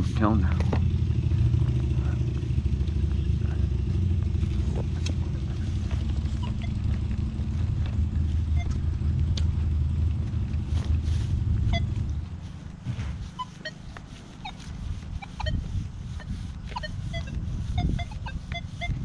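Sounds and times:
vehicle engine rumble: 0.0 - 19.0
short high blips: 6.3 - 6.9, 13.3 - 19.0.

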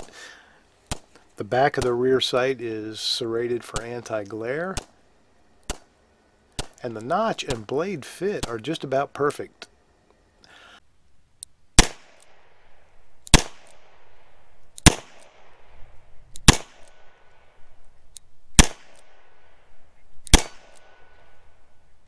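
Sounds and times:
revolver gunshots with echo: 11.8 - 12.5, 13.3 - 15.8, 16.4 - 17.2, 18.6 - 19.3, 20.3 - 21.2.

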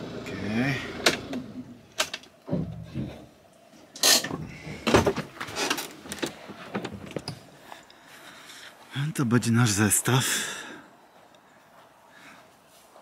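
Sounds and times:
van engine stopping: 0.0 - 1.8.

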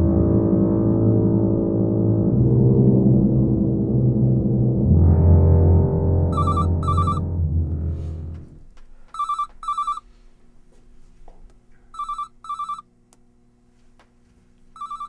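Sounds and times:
cell phone ringing: 6.3 - 7.3, 9.1 - 10.1, 11.9 - 12.9, 14.8 - 15.0.

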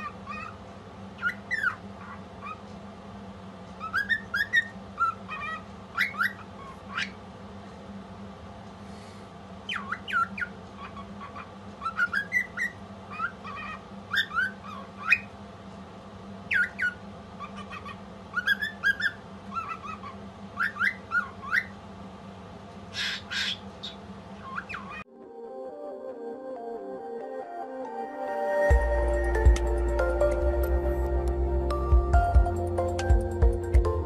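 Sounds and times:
cockatiel squawk: 0.0 - 0.6, 1.2 - 2.6, 3.8 - 7.2, 9.7 - 15.3, 16.5 - 21.8, 22.9 - 25.0
cockatiel whistled chirps: 3.8 - 7.2, 11.8 - 15.3, 16.5 - 21.7.

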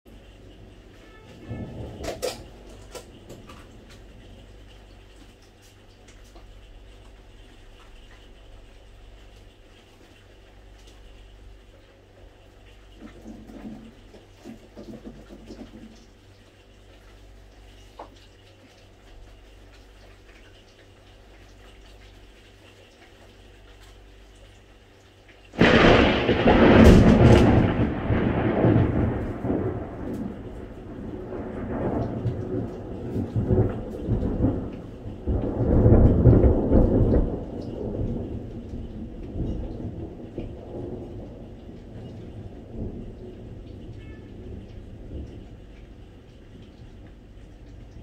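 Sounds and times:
rain pattering: 0.1 - 48.0
thunder crack and rumbles: 0.2 - 5.2, 25.6 - 48.0.

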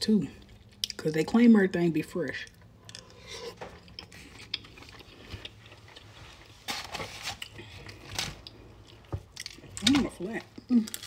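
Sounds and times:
soft chewing: 2.5 - 6.6
rustling and crackling in takeout box: 4.1 - 11.0.

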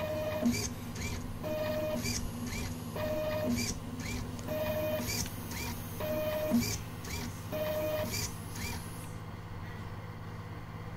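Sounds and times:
machine motor whine: 0.0 - 10.7
quick whirring strokes: 0.4 - 4.3, 4.9 - 9.2.

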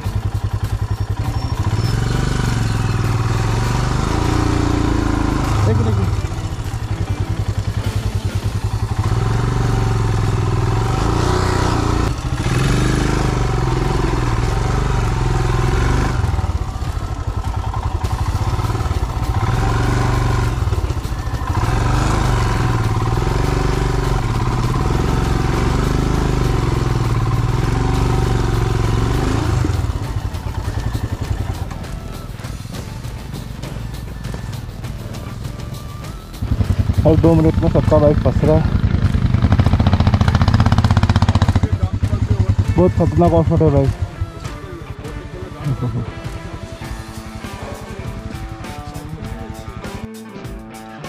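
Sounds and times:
motorcycle engine revving: 0.0 - 50.6.

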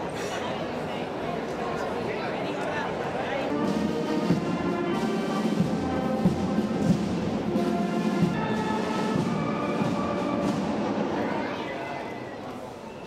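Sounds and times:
timpani strokes: 3.5 - 11.2
orchestral music: 3.5 - 11.4.

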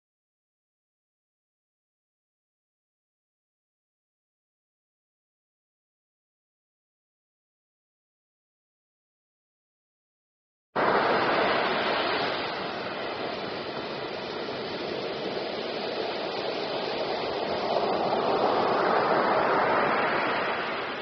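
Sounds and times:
waves breaking on beach: 10.8 - 21.0.

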